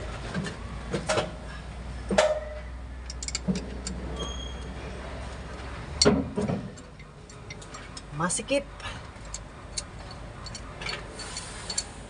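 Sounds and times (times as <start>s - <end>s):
metal tools clinking on bolts: 2.3s - 4.7s, 6.7s - 8.1s, 8.9s - 12.0s.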